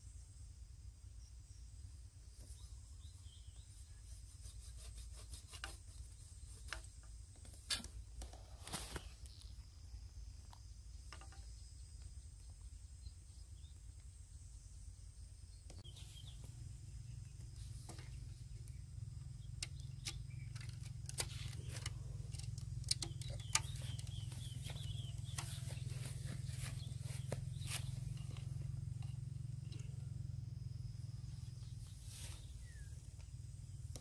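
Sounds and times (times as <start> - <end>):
string handling clicks and rustles: 19.4 - 30.1.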